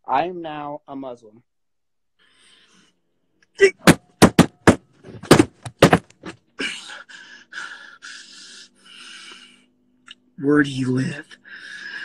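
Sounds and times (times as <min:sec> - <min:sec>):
loud thumps inside a car: 0:03.8 - 0:06.3.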